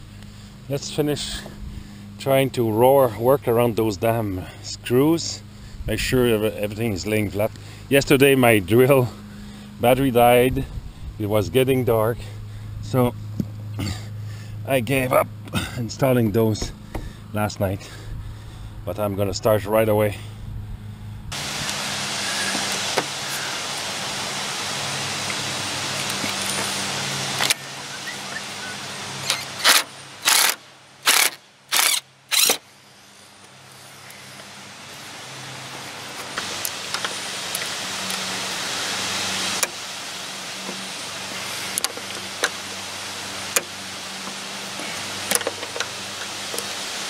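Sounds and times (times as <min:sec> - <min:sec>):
steady background hiss: 0:20.9 - 0:47.0
cordless drill driving screws: 0:29.2 - 0:32.6.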